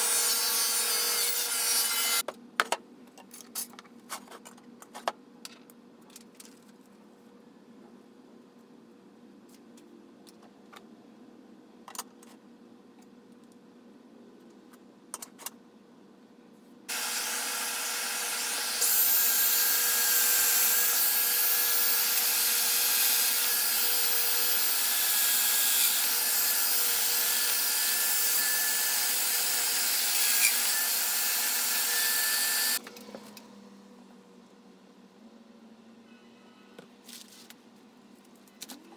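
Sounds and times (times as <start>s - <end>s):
power joiner running: 16.9s - 32.8s.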